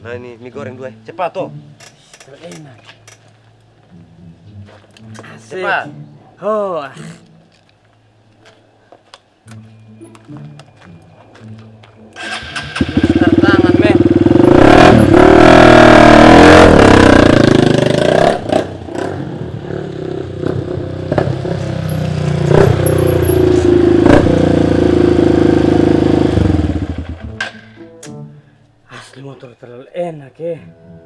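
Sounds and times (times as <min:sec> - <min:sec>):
dirt bike engine revving: 0:12.2 - 0:27.3.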